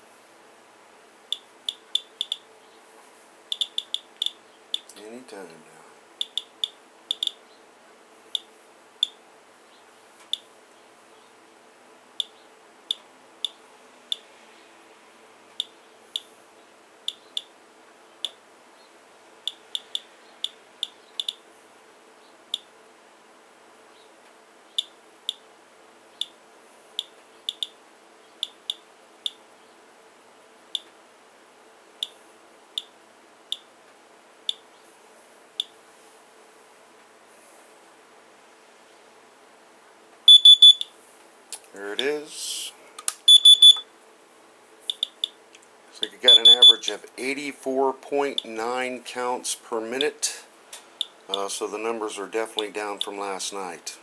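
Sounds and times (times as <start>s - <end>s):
faint steady hum: 0.0s - 54.0s
geiger counter clicking: 1.3s - 2.4s, 3.5s - 4.9s, 6.2s - 7.4s, 19.5s - 21.4s, 27.0s - 27.7s, 44.9s - 45.4s, 46.3s - 46.7s.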